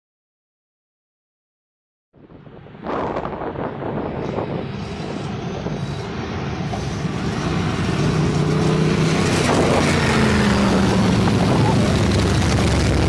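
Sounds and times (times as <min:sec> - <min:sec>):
motorcycles riding past: 0:05.0 - 0:13.0.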